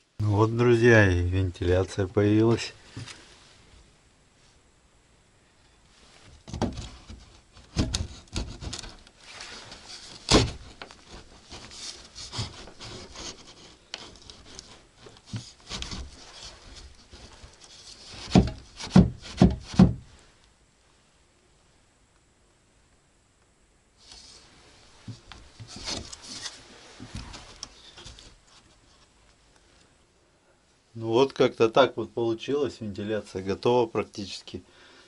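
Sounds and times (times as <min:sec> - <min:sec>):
wood being scraped and rubbed: 0:06.0 - 0:20.1, 0:24.0 - 0:29.1
sharp knocks on wood: 0:18.2 - 0:20.1.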